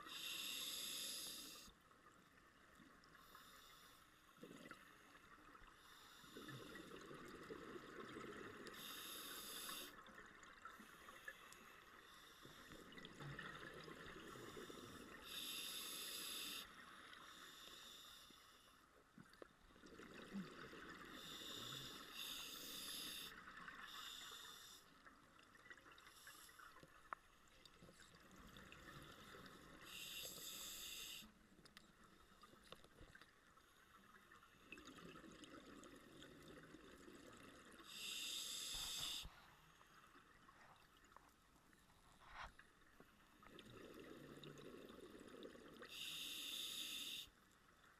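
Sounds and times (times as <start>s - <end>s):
regulator hissing inhale: 0.0s - 1.7s, 3.2s - 4.4s, 8.7s - 10.0s, 14.2s - 18.8s, 21.1s - 25.0s, 29.0s - 31.4s, 37.8s - 39.5s, 45.8s - 47.4s.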